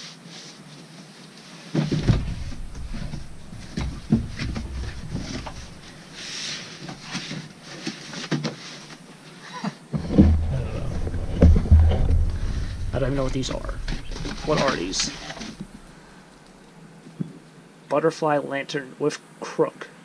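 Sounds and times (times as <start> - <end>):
heavy low bumps of handling: 1.8 - 7.2, 10.0 - 16.2.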